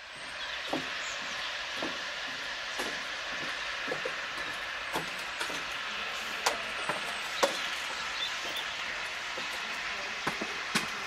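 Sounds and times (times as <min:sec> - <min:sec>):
steam train hissing: 0:00.0 - 0:11.0
sharp clicks and knocks: 0:00.7 - 0:01.0.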